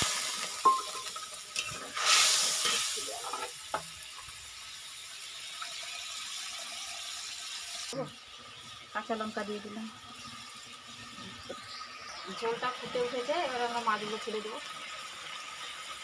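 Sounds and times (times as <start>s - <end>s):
water sizzling in hot pan: 0.0s - 16.0s.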